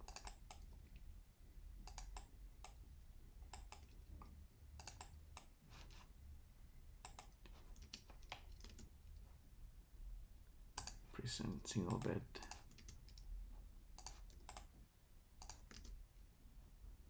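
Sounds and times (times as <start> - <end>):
mouse and keyboard clicks: 0.0 - 0.7, 1.9 - 2.8, 3.5 - 4.0, 4.8 - 5.5, 7.0 - 8.9, 10.8 - 11.0, 11.9 - 13.3, 14.0 - 14.7, 15.4 - 16.0
low steady hum: 0.0 - 17.0.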